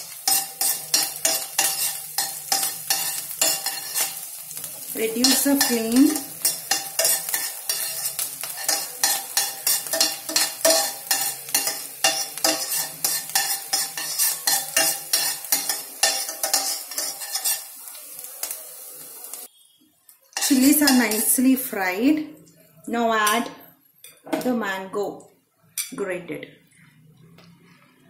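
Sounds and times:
metal spoon scraping a pan: 0.0 - 19.5, 20.3 - 21.6
frying sizzle: 0.0 - 22.3.

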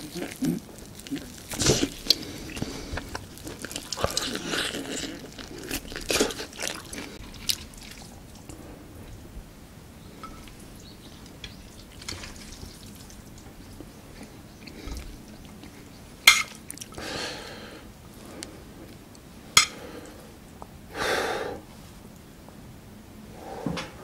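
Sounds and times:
wet sticky noodle sounds: 0.0 - 8.6.

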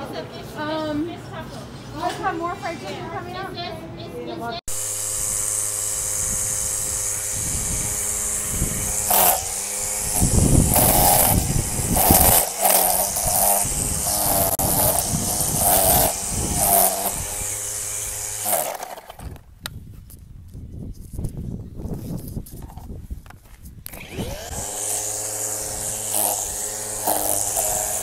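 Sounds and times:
electric string trimmer whining: 4.7 - 19.5, 23.8 - 28.0.

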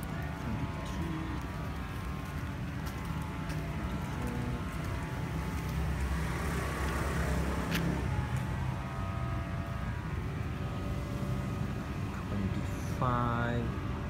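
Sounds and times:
low traffic rumble: 0.0 - 14.0
car passing by: 5.8 - 9.4.

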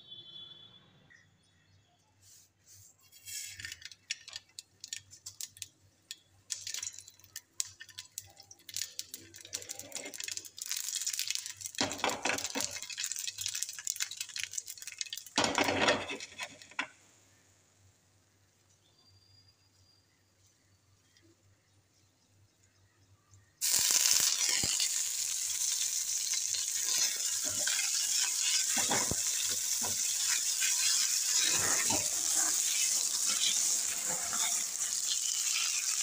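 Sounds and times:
oil sizzling: 3.0 - 16.8, 23.6 - 36.0
seeds popping in hot oil: 3.1 - 16.9, 23.4 - 36.0.

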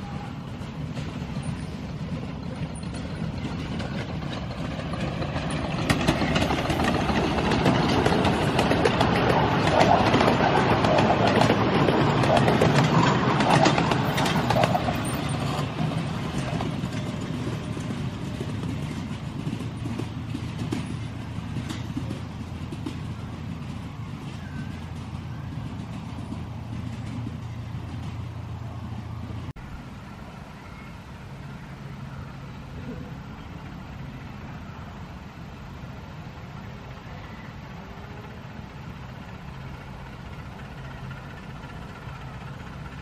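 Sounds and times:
small clicks of train: 0.0 - 29.5, 35.8 - 43.0
miniature steam train running: 0.0 - 43.0.

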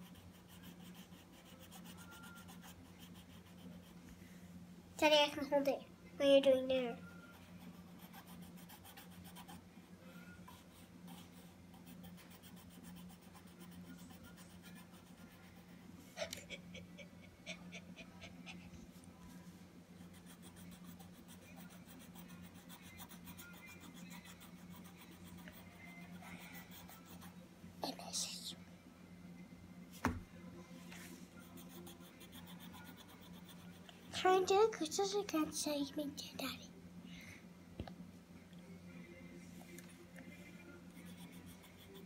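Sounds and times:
pencil scratching on paper: 0.0 - 4.0, 7.4 - 9.6, 10.5 - 15.7, 31.4 - 33.9.

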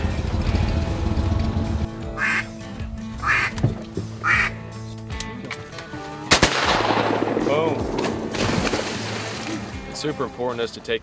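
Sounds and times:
background music: 0.0 - 11.0
duck quacking: 2.1 - 2.6, 3.2 - 3.6, 4.2 - 4.6
gunshot: 6.3 - 9.1.

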